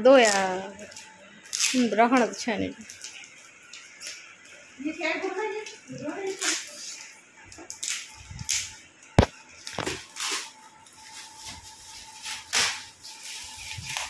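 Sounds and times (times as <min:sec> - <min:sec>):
metallic paper crinkling and tearing: 0:09.6 - 0:14.0.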